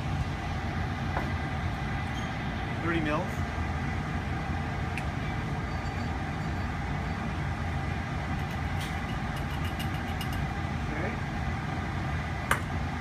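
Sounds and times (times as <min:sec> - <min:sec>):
fume hood fan rumbling: 0:00.0 - 0:13.0.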